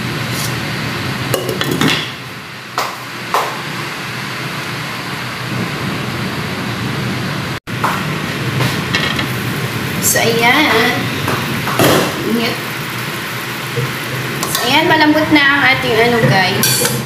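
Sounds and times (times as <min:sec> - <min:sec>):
broth boiling in pot: 0:03.8 - 0:17.0.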